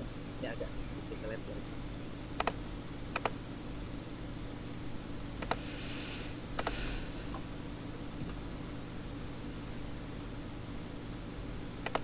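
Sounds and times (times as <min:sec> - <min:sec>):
steady low hum: 0:00.0 - 0:12.0
computer mouse clicks: 0:02.4 - 0:02.6, 0:03.2 - 0:03.4, 0:05.4 - 0:05.6, 0:06.6 - 0:06.8.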